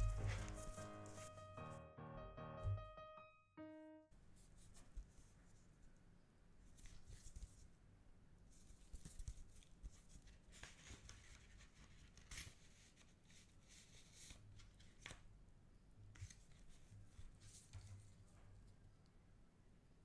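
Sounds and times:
postcards being shuffled: 0:06.7 - 0:07.7, 0:08.6 - 0:15.3.

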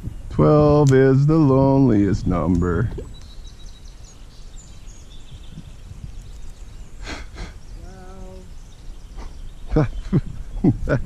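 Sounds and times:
stream low rumble: 0:00.0 - 0:11.0
faint bird chirps: 0:02.7 - 0:11.0
quick breaths: 0:07.0 - 0:07.6.

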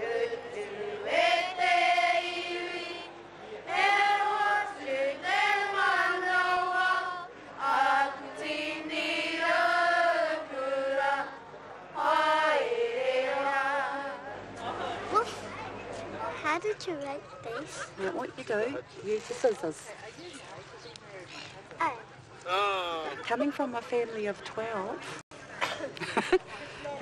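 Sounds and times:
children singing in unison: 0:00.0 - 0:03.1, 0:03.7 - 0:11.4, 0:12.0 - 0:14.2.

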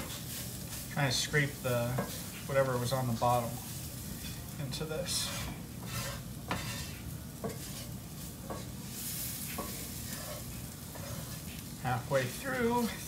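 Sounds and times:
frying pan sizzling: 0:00.0 - 0:13.0
wooden spatula scraping pan: 0:00.0 - 0:13.0.

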